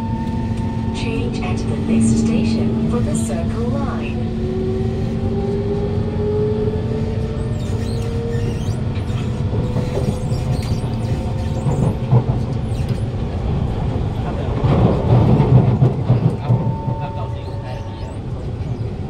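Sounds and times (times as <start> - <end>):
train motors whining: 0.0 - 13.2
wheels rumbling on track: 0.0 - 19.0.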